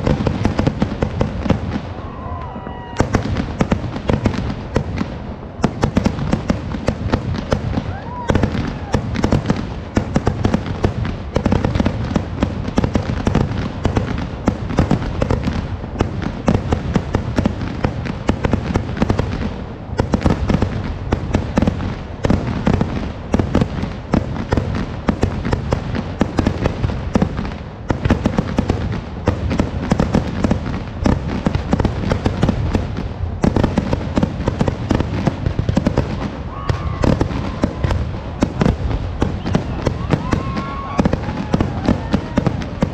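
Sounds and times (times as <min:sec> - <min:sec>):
firework bangs and cracks: 0:00.0 - 0:42.9.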